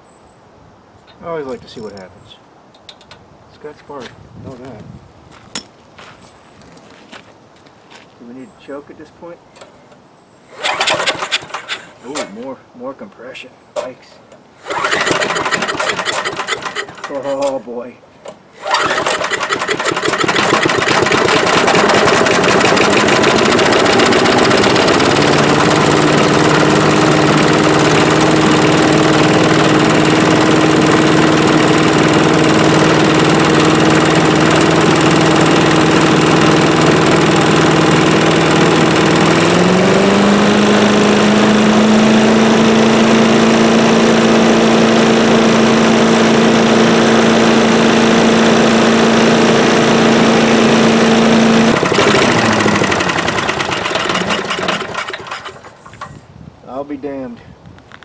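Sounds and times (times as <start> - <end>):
small engine running: 10.5 - 12.3, 14.6 - 17.5, 18.6 - 56.2
blower fan rush of air: 10.5 - 12.4, 14.5 - 17.2, 18.5 - 57.9
starter rope pull: 10.5 - 12.4, 14.6 - 17.6, 18.6 - 42.0, 47.0 - 56.2.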